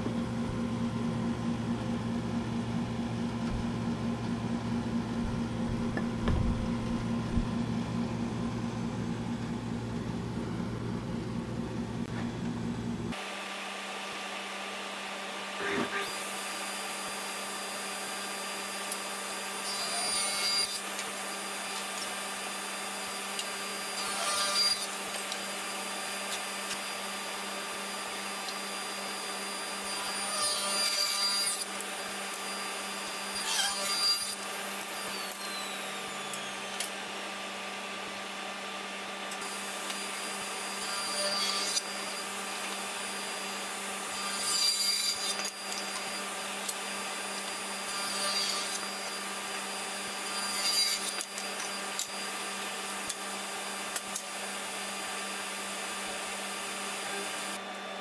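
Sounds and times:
table saw cutting wood: 13.1s - 58.0s
table saw running: 13.1s - 58.0s.

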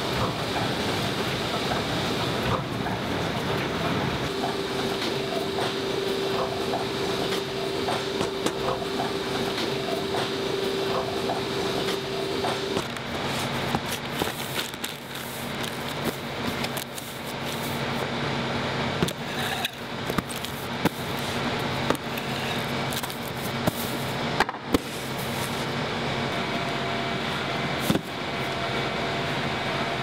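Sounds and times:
steady machine hum: 0.0s - 30.0s
packing tape rasping off roll: 12.8s - 17.8s.

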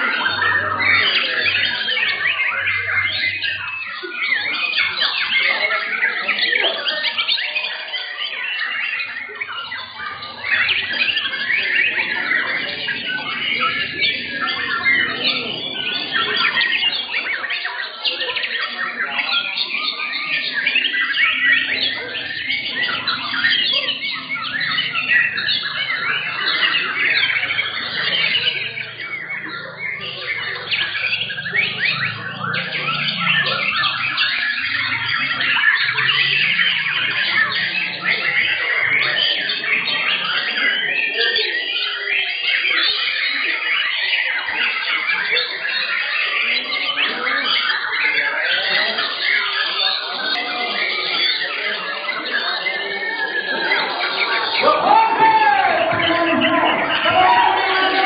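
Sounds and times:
chorus of songbirds singing: 0.0s - 58.0s.

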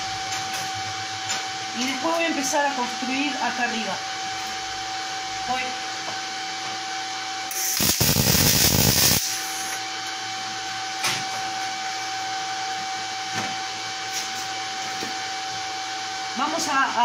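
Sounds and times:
welder machine hum: 0.0s - 17.0s
welding arc crackle: 7.5s - 9.8s.

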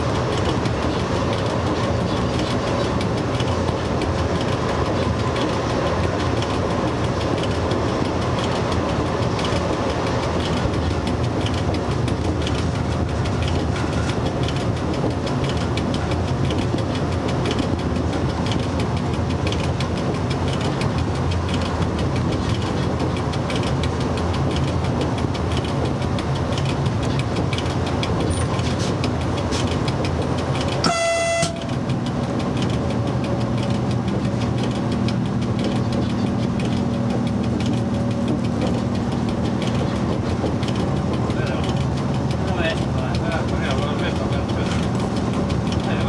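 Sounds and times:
electric locomotive running: 0.0s - 46.0s
locomotive horn blast: 30.8s - 31.8s.

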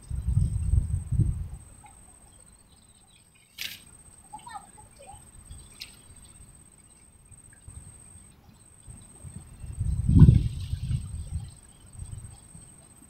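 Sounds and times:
wind rumble on microphone: 0.0s - 1.9s, 8.8s - 13.0s.

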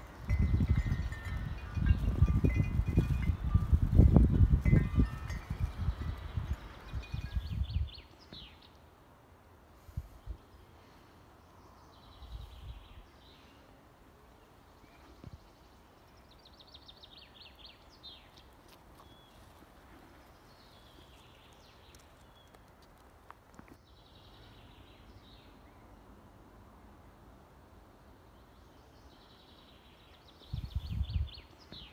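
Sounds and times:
songbirds trilling: 0.0s - 8.9s.

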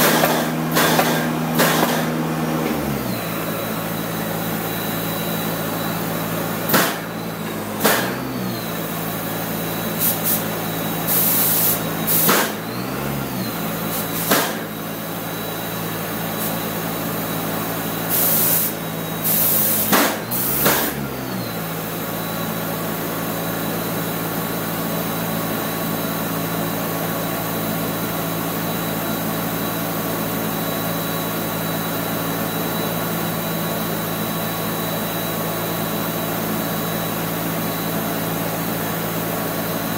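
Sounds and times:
steady machine hum: 0.0s - 14.0s
spray gun hissing: 11.1s - 12.3s.

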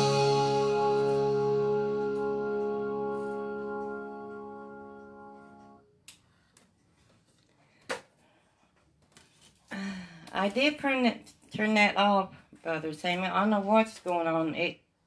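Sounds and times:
gospel song closing chord: 0.0s - 5.8s.

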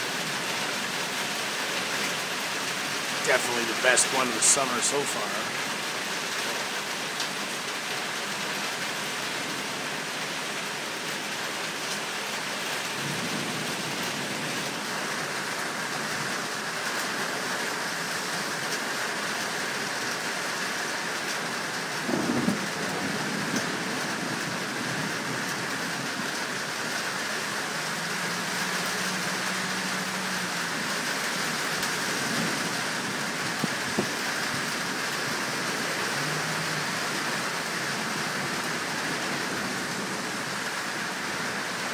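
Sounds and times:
rain falling: 0.0s - 41.9s.

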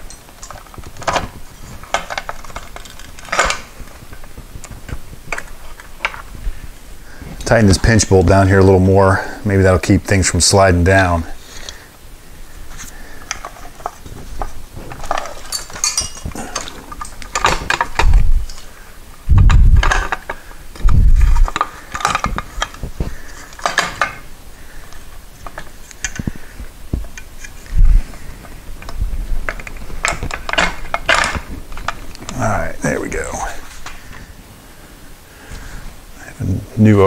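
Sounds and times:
metal tools clinking on metal parts: 14.9s - 18.6s.

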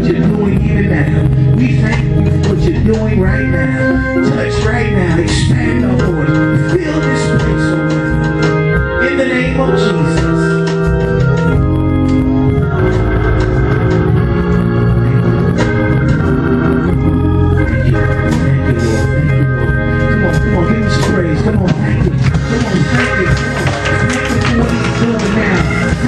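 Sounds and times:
electronic organ chords: 0.0s - 26.0s.

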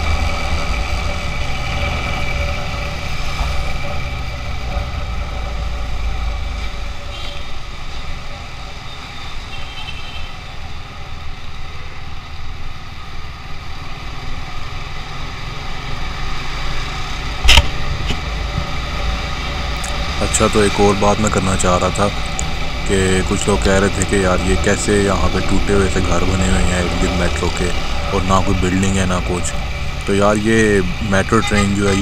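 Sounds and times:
road and traffic noise: 0.0s - 32.0s
sharp knock: 17.4s - 18.2s.

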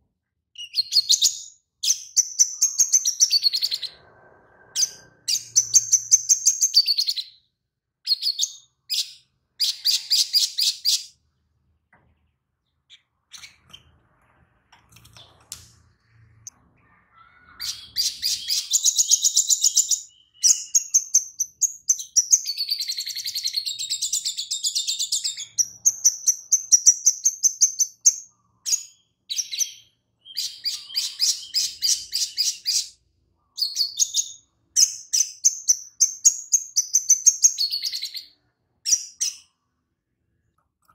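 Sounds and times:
bird singing trills: 16.4s - 39.6s.

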